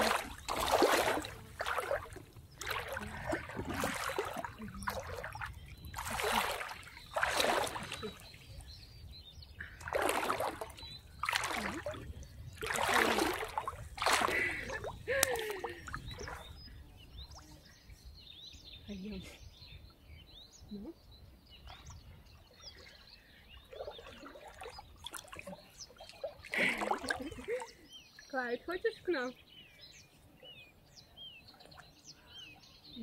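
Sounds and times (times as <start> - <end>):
water splashing and sloshing: 0.0 - 17.4, 21.6 - 29.2.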